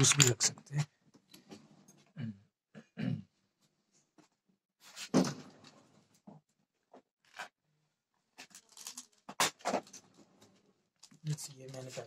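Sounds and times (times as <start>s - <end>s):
plastic box of screws rattling: 8.5s - 9.2s.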